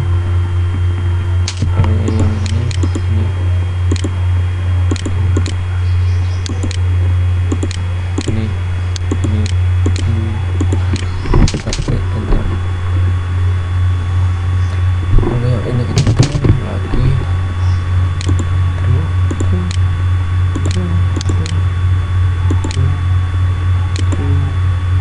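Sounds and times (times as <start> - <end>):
low electrical hum: 0.0 - 25.0
mouse and keyboard clicks: 1.5 - 3.1, 3.9 - 4.1, 4.9 - 5.6, 7.5 - 8.4.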